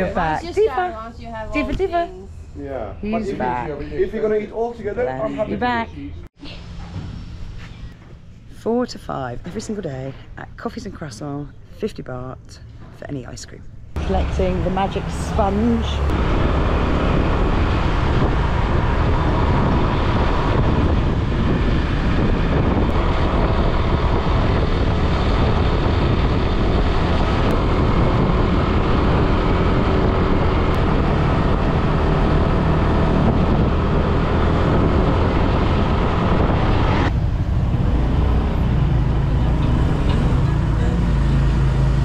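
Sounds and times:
vehicle running noise: 12.6 - 42.0
wind rumbling on microphone: 14.0 - 42.0.

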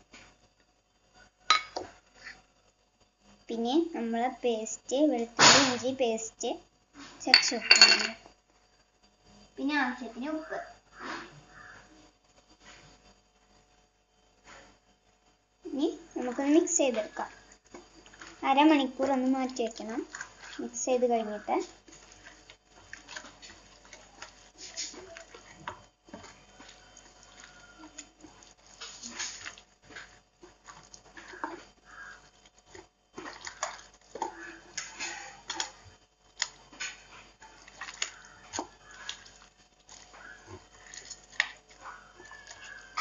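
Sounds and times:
wet squelching of meat mixing: 15.8 - 43.0.

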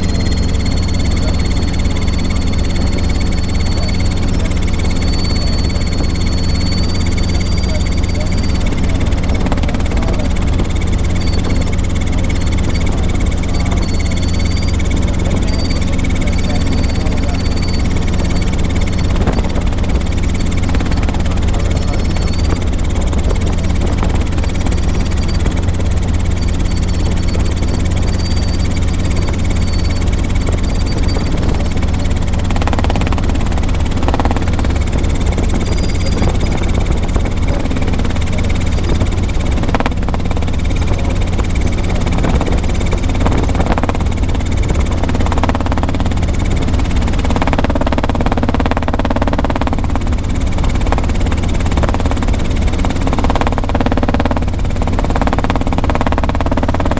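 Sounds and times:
helicopter engine and rotor beat: 0.0 - 56.9.

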